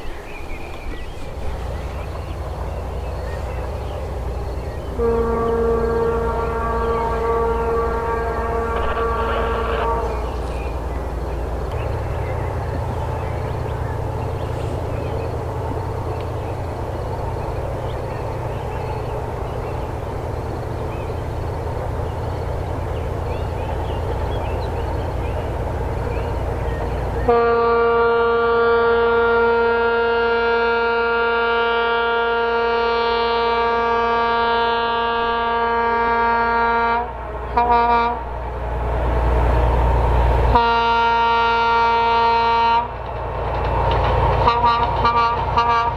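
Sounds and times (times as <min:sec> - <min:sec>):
diesel locomotive engine rumble: 0:00.0 - 0:45.9
locomotive air horn blasts: 0:04.9 - 0:10.4, 0:27.2 - 0:38.4, 0:40.5 - 0:43.0, 0:44.4 - 0:45.9.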